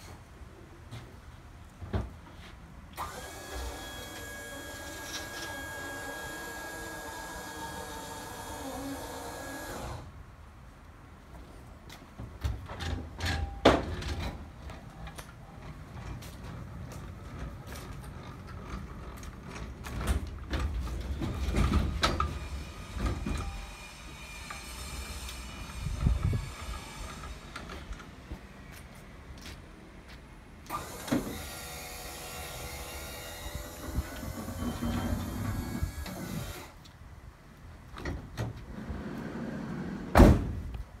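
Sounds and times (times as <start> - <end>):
lift motor running: 3.0 - 10.1
sliding door rolling shut: 3.0 - 10.1, 12.7 - 28.2, 30.7 - 31.6, 33.6 - 36.8, 38.0 - 40.7
clunks and knocks: 12.2 - 22.4
trolley wheels rumbling on metal: 12.6 - 23.7
door slamming: 40.1 - 40.7.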